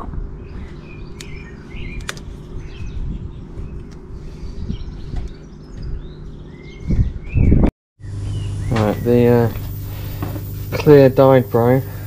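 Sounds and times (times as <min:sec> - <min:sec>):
small birds chirping and singing: 0:00.2 - 0:10.1
sharp clicks: 0:01.2 - 0:02.3.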